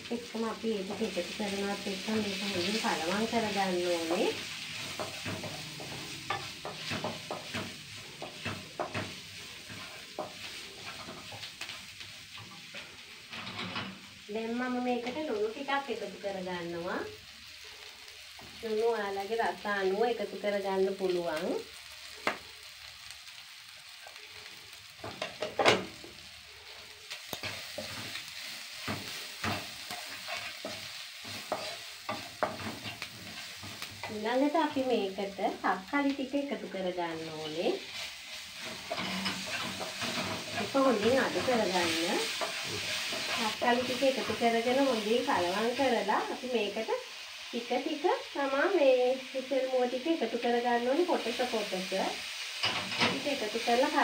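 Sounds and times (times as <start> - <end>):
onions sizzling in oil: 0.0 - 54.0
spatula scraping a pan: 0.8 - 14.1, 26.7 - 34.2, 37.4 - 45.9.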